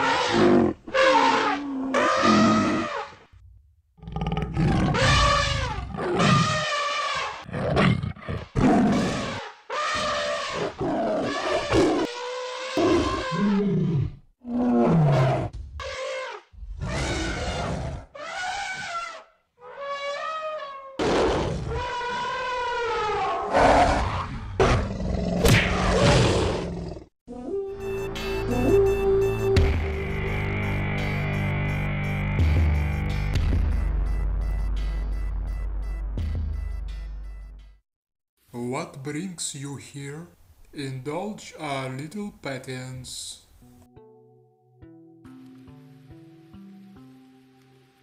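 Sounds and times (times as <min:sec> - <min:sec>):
monster roars: 0:21.0 - 0:27.1
music with held note and ticking beat: 0:27.8 - 0:37.8.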